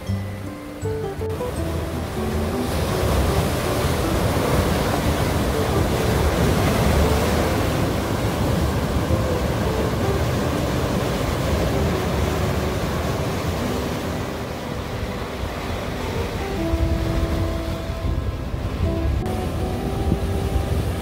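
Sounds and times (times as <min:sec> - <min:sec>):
waves breaking on rocks: 0:01.2 - 0:21.0.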